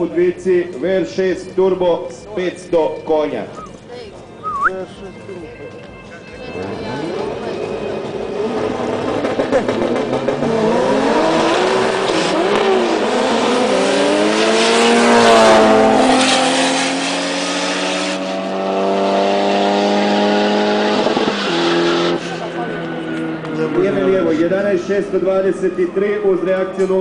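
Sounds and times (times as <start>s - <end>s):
racing car engines at full throttle: 6.3s - 27.0s.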